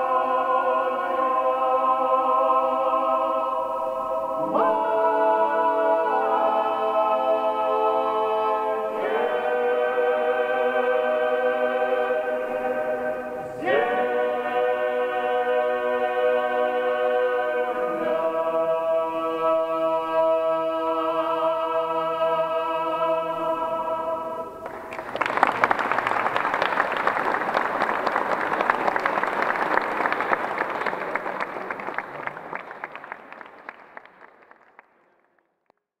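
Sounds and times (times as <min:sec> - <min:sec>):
male vocal group singing: 0:00.0 - 0:24.6
audience applauding: 0:24.6 - 0:35.3.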